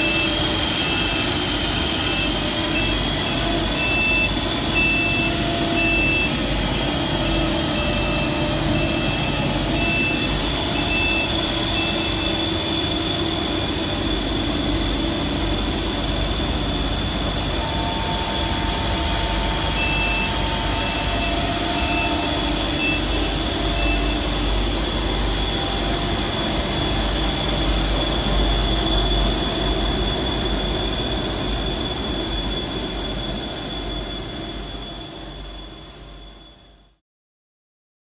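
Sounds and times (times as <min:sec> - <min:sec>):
separating machine running: 0:00.0 - 0:36.2
short beeps: 0:02.1 - 0:06.4, 0:07.2 - 0:12.4, 0:17.6 - 0:24.3.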